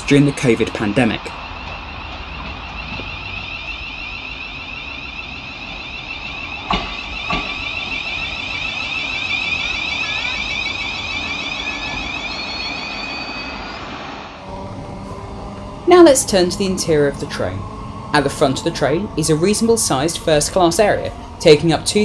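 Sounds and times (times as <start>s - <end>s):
electric train whine: 0.0s - 22.0s
sharp knocks: 6.7s - 7.6s.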